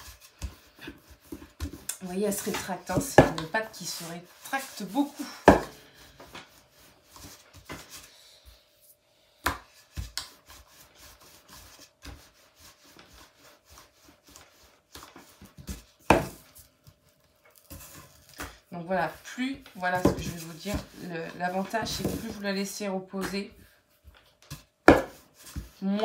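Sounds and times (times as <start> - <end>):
rolling pin rolling dough: 0.0 - 8.8, 9.4 - 26.0
rolling pin knocking on table: 24.9 - 25.2.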